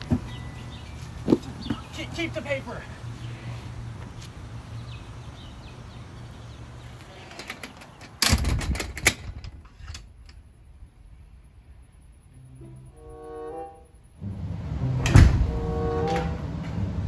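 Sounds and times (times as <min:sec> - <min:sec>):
low hum: 0:09.1 - 0:17.0.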